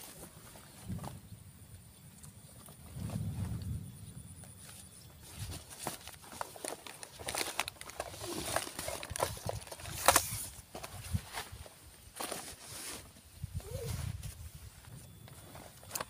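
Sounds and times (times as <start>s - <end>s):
nylon bag rustling: 4.6s - 16.0s
objects clattering in bag: 5.2s - 14.4s.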